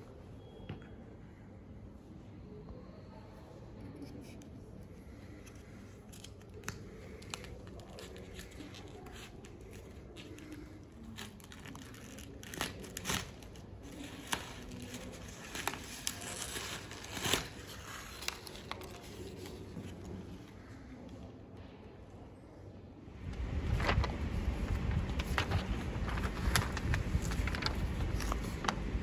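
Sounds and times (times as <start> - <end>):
rustling and light clicks: 24.7 - 28.8.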